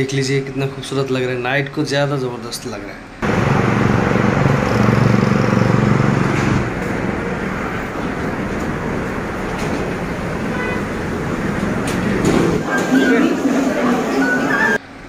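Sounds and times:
low engine drone: 0:03.2 - 0:12.8
road traffic: 0:03.2 - 0:15.0.

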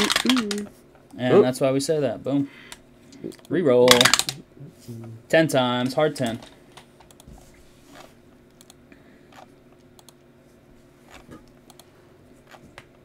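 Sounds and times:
steady low hum: 0:00.0 - 0:13.0
computer mouse clicks: 0:07.0 - 0:07.3, 0:08.0 - 0:10.2, 0:11.1 - 0:11.9.

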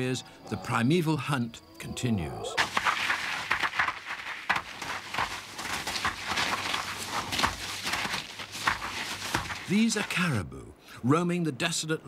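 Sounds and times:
hooves galloping over snow: 0:02.6 - 0:10.2.

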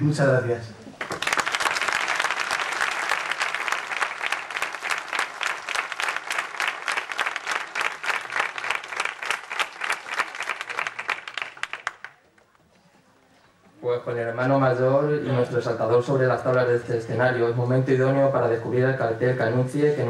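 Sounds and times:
audience applauding: 0:00.9 - 0:12.5.

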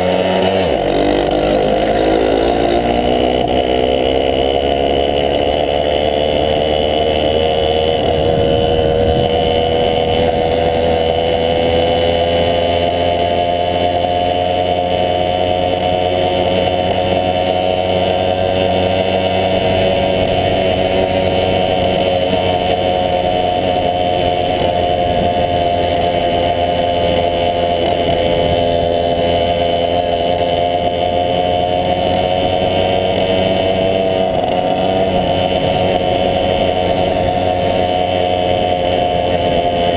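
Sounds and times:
moped engine running: 0:00.0 - 0:39.9.

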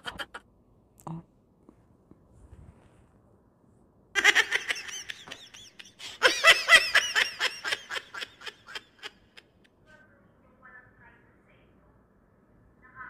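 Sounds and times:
person laughing hard: 0:04.2 - 0:09.4.

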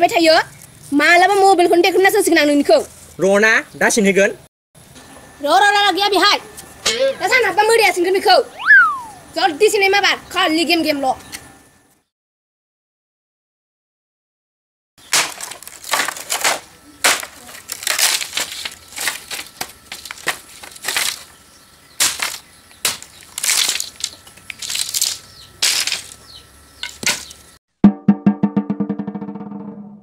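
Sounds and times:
stick scraping over earth: 0:15.1 - 0:21.4, 0:22.0 - 0:27.4.

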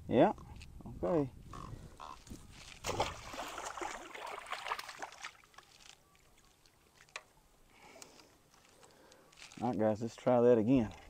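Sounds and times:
water splashing and sloshing: 0:02.0 - 0:07.4.

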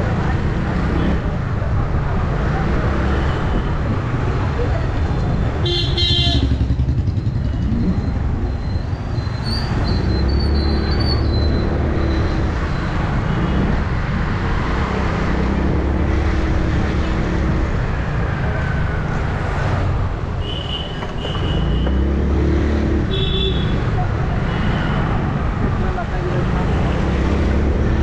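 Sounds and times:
city traffic: 0:00.0 - 0:28.0
road and wind noise: 0:00.0 - 0:28.0
motorcycle engine running: 0:06.2 - 0:08.3.

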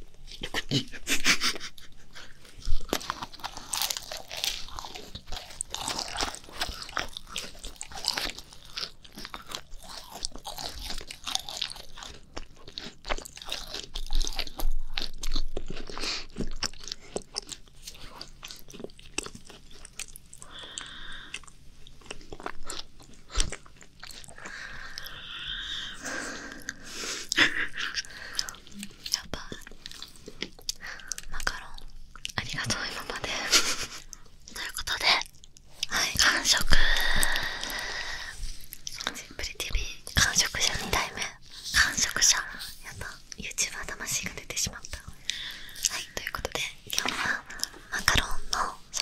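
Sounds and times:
soft chewing: 0:00.0 - 0:49.0
crisp crunching of cookies: 0:01.6 - 0:25.2.

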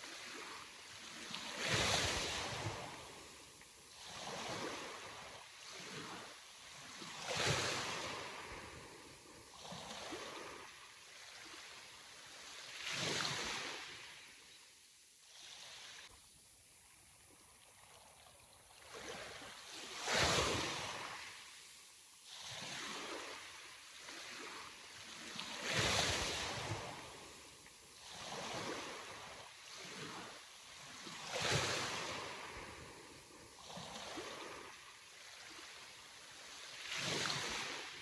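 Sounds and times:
sea waves crashing: 0:18.9 - 0:21.5, 0:22.3 - 0:32.8.

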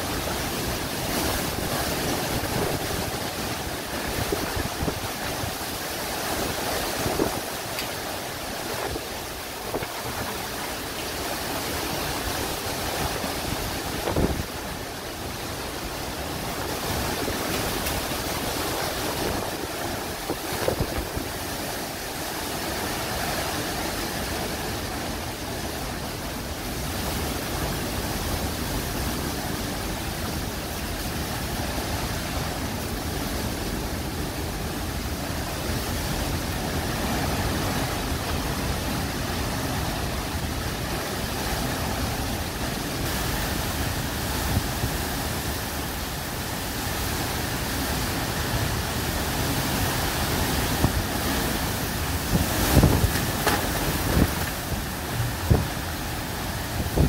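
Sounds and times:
wind and driving rain: 0:00.0 - 0:57.0
gusts buffeting microphone: 0:00.8 - 0:22.6, 0:50.4 - 0:57.0.

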